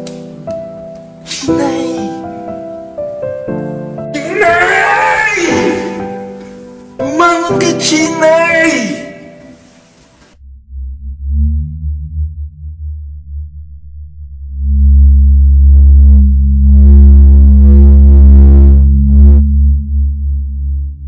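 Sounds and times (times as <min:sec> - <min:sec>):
deep electronic drone: 0:10.3 - 0:21.0
harsh buzzy synth layer: 0:15.1 - 0:19.5.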